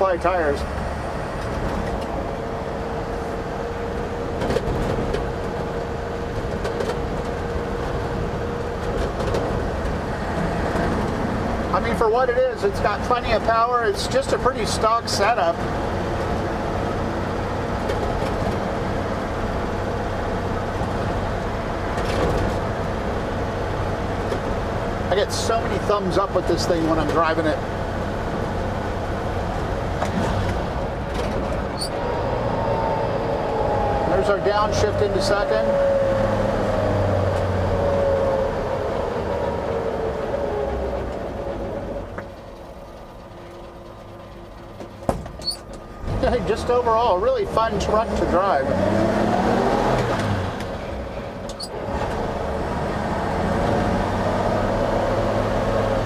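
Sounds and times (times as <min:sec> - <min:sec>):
truck engine running: 0:00.0 - 0:35.6, 0:36.5 - 0:56.0
road noise: 0:00.0 - 0:56.0.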